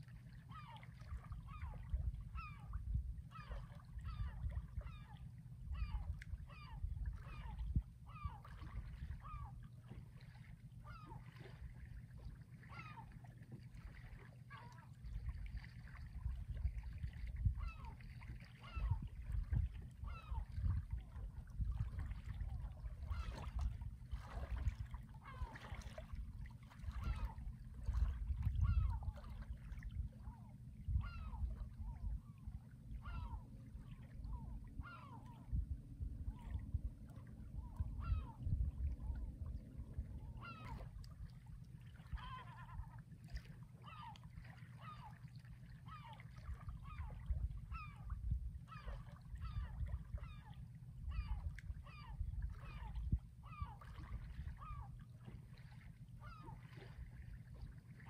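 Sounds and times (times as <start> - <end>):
steady low rumble: 1.8 - 9.8, 18.9 - 25.2, 26.0 - 42.1, 47.2 - 53.4.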